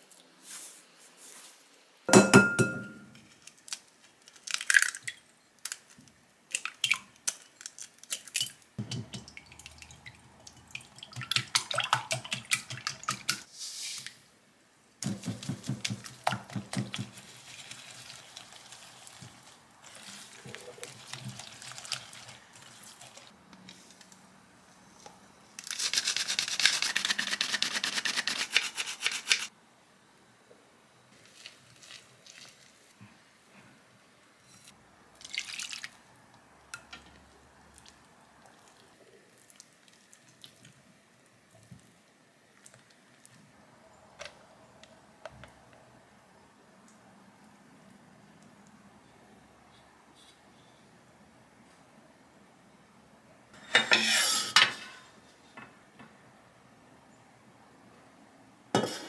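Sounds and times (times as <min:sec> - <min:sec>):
flour sifter rustling hiss: 0:00.0 - 0:02.0, 0:13.5 - 0:14.4.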